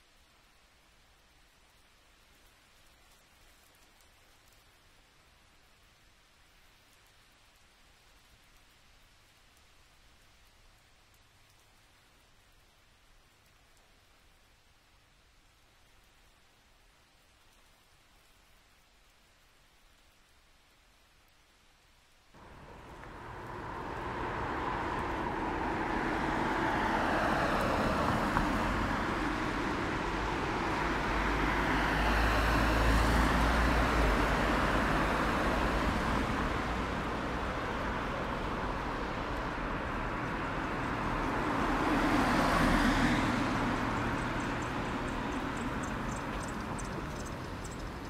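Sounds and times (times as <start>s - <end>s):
vehicles passing: 22.4s - 48.0s.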